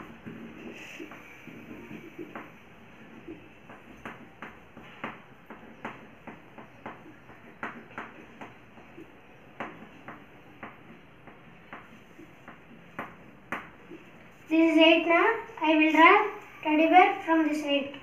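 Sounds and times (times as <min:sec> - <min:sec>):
chalk tapping on blackboard: 0:00.0 - 0:14.4.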